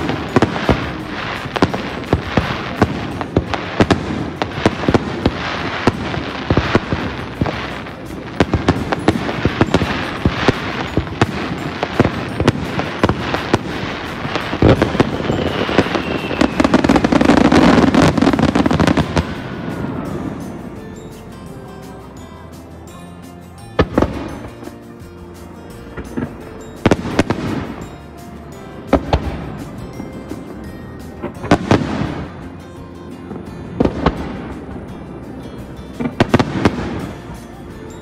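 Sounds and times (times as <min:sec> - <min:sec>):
fireworks pops and crackles: 0:00.0 - 0:20.8, 0:25.9 - 0:28.0, 0:28.6 - 0:32.4, 0:35.9 - 0:37.4
fireworks rumbling barrage: 0:00.0 - 0:22.7, 0:23.6 - 0:37.7.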